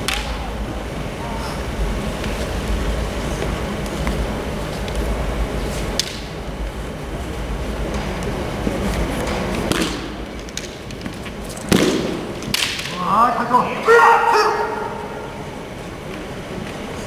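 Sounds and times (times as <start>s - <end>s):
fencers shouting: 12.9s - 15.5s.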